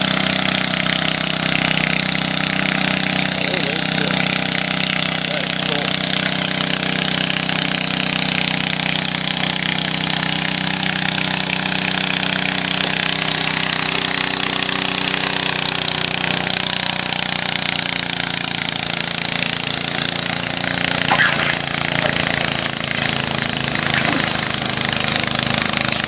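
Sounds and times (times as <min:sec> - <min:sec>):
small tractor engine running: 0:00.0 - 0:26.0.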